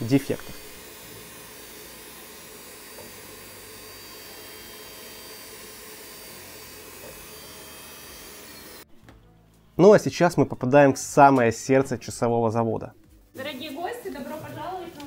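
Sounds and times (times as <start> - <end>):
polishing motor humming: 0.0 - 8.9.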